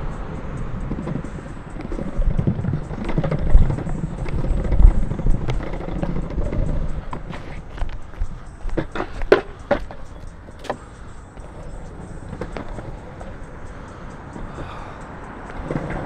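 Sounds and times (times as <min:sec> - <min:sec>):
longboard wheels rolling on pavement: 0:00.0 - 0:16.0
board clicks and knocks: 0:01.8 - 0:10.8.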